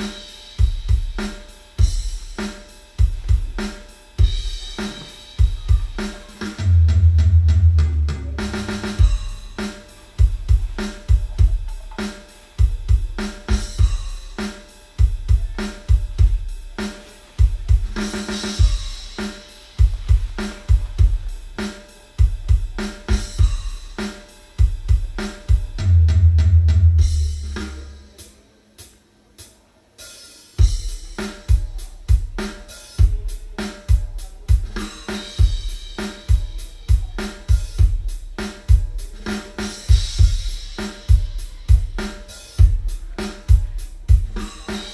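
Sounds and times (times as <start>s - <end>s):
cymbals and hi-hat: 0.0s - 44.9s
kick drum hits: 3.0s - 3.6s, 4.2s - 6.0s, 10.2s - 11.8s, 15.0s - 16.5s, 19.8s - 21.3s, 43.5s - 44.4s
deep bass note: 6.6s - 9.6s.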